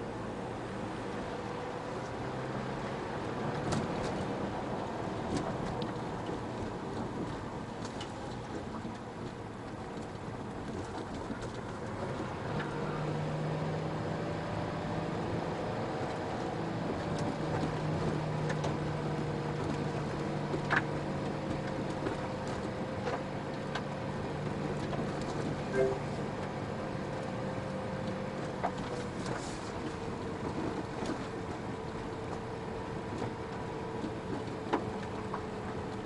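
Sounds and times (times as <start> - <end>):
car engine running: 16.8 - 36.0.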